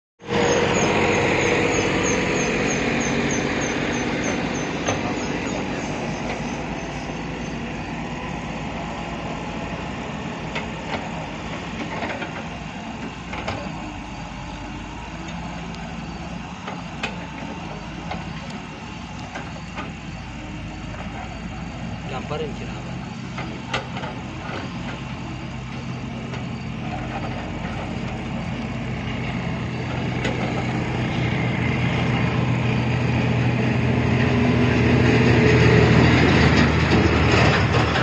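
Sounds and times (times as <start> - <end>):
excavator diesel engine running: 0.2 - 38.0.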